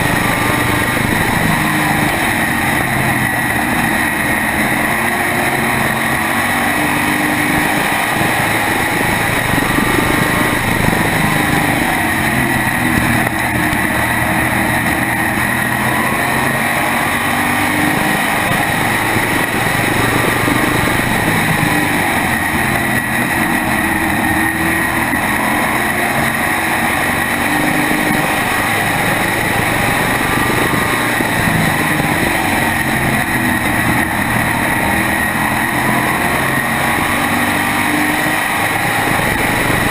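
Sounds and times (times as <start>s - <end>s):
other race car engines: 0.0s - 39.9s
race car engine revving: 0.0s - 39.9s
steady high whine: 0.0s - 39.9s.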